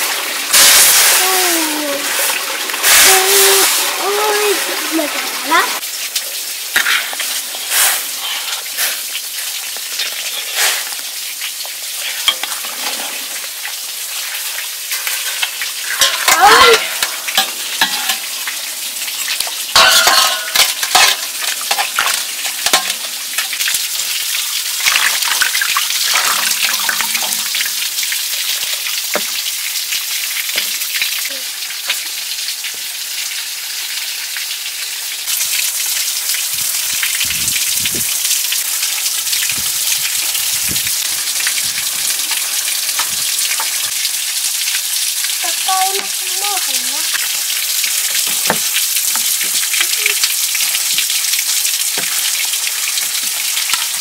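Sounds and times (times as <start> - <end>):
food sizzling in a pot: 0.0 - 54.0.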